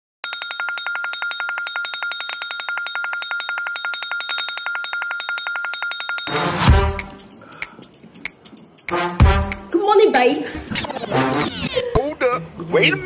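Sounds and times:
smartphone alarm tone ringing: 0:00.2 - 0:06.7.

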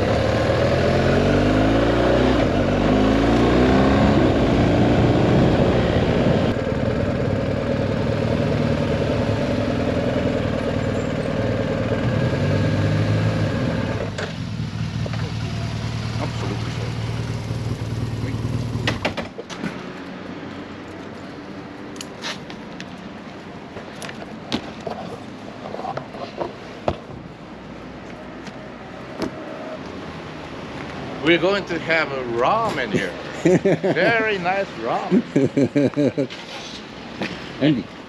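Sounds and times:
motorcycle engine slowing and idling: 0:00.0 - 0:19.2.

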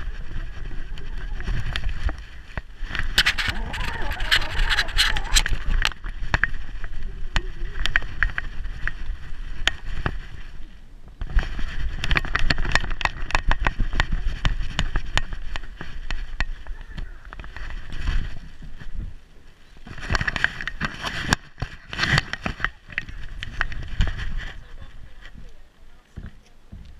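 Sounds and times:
low rumble: 0:00.0 - 0:10.8.

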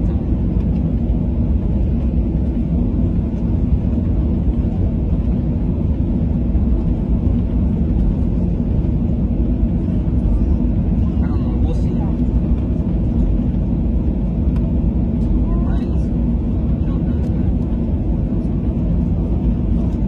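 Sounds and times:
airliner cabin rumble: 0:00.0 - 0:20.0.

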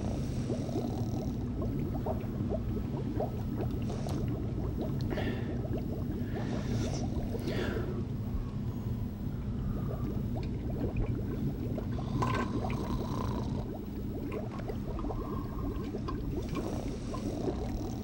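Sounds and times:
liquid gurgling and bubbling: 0:00.0 - 0:18.0
low steady hum: 0:00.0 - 0:18.0.

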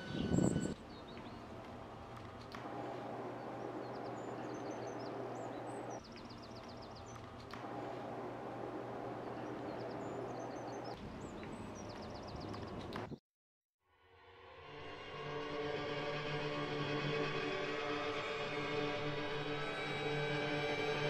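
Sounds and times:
low street hum and hiss: 0:00.0 - 0:13.1, 0:15.0 - 0:21.0
small birds chirping: 0:00.0 - 0:13.2.

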